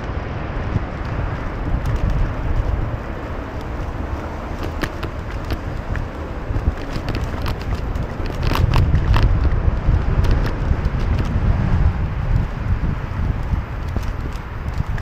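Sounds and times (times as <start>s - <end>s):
road traffic: 0.0s - 15.0s
wind rumbling on microphone: 0.0s - 15.0s
light clicks and rattles: 1.0s - 11.4s, 13.2s - 15.0s.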